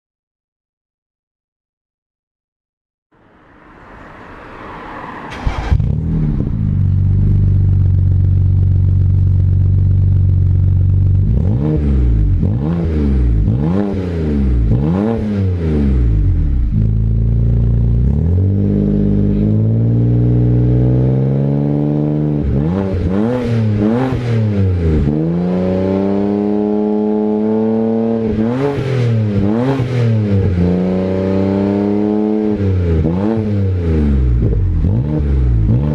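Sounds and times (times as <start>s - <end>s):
car engine starting and revving: 3.7s - 35.9s
exhaust crack: 5.2s - 21.3s.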